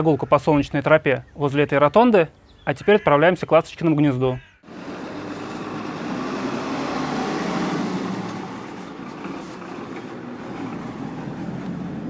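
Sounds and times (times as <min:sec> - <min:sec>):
tyre and road noise: 0:04.6 - 0:12.0
minibus engine running: 0:04.7 - 0:12.0.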